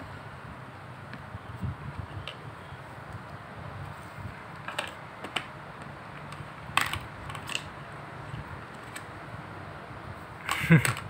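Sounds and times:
plastic toy pieces clicking: 6.3 - 7.7, 10.5 - 11.0.

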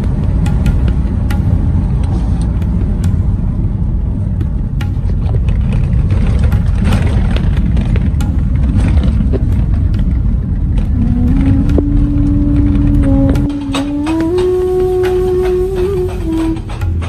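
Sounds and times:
sharp clicks and knocks: 0.0 - 17.0
vehicle driving rumble: 0.0 - 17.0
held musical note: 10.8 - 17.0.

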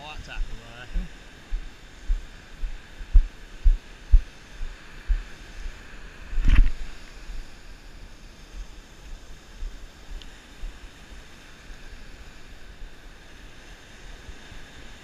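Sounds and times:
surf hissing: 0.0 - 15.0
footsteps on sand: 0.4 - 7.6.

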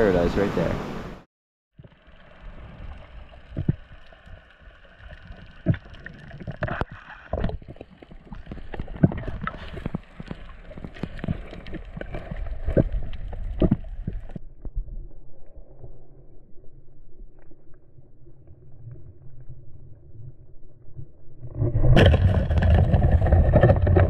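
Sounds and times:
underwater water rush and hiss: 0.1 - 1.2.

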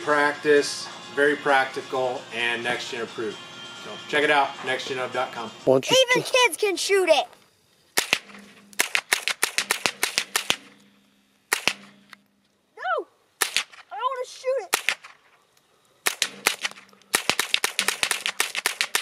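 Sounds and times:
rifle gunshots: 8.0 - 10.7, 11.5 - 11.9, 13.4 - 13.8, 14.7 - 15.2, 16.0 - 19.0.

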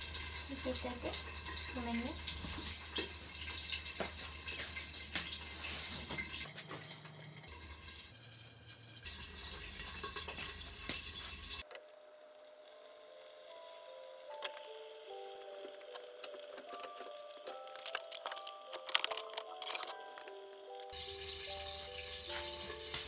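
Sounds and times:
background music stepped melody: 13.5 - 23.0.

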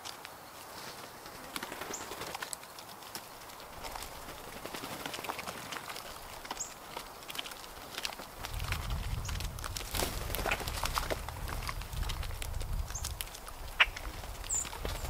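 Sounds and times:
birds pecking in wood chips: 0.0 - 15.0.

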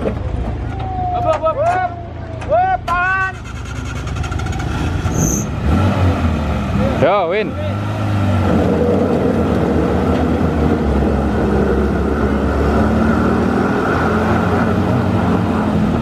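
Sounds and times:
engine running under load: 3.3 - 16.0.

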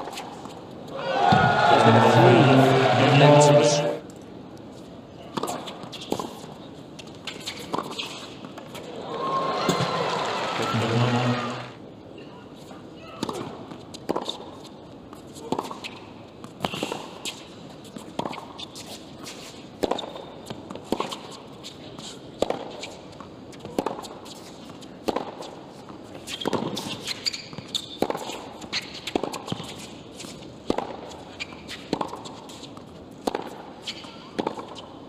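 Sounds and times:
tennis ball bouncing: 30.7 - 32.4, 33.2 - 33.6.

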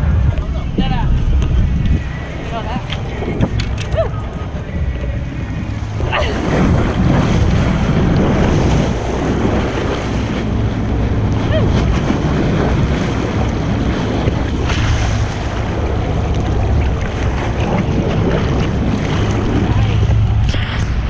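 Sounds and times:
water splashing against boat: 0.0 - 21.0
wind buffeting microphone: 0.0 - 21.0.

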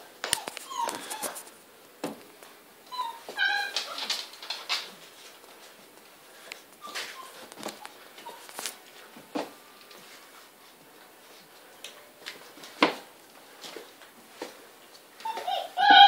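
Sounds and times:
puppies' claws clicking and tapping: 0.2 - 2.4, 3.2 - 8.8
faint puppy squeaks: 0.4 - 1.4, 2.9 - 4.1, 6.8 - 7.5, 8.2 - 8.5, 15.2 - 16.0.

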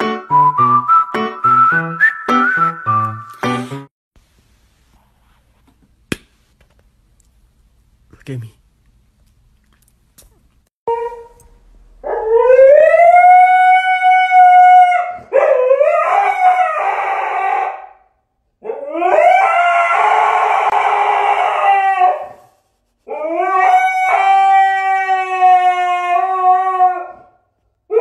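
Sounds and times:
husky howling: 12.0 - 18.0, 18.6 - 22.5, 23.1 - 28.0.

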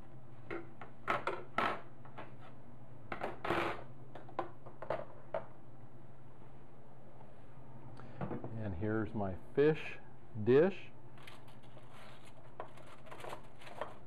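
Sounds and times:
steady low hum: 0.0 - 14.0
aluminium foil crinkling: 11.2 - 14.0
baking sheet clattering: 11.4 - 14.0.

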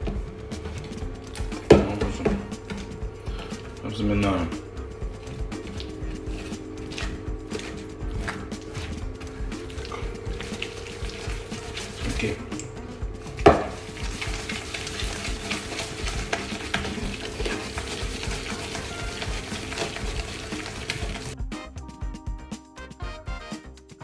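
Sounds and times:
whisk scraping metal bowl: 0.6 - 21.4.

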